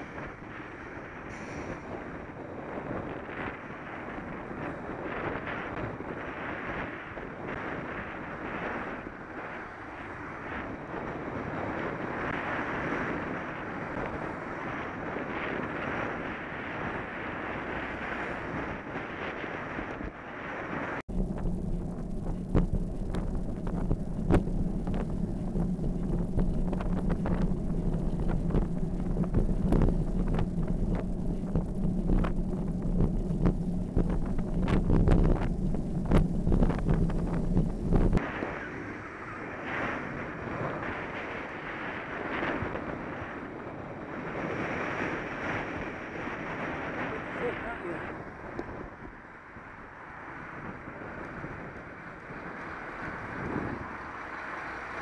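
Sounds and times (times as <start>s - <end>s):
wind buffeting microphone: 0.0s - 55.0s
steady low hum: 21.1s - 42.2s.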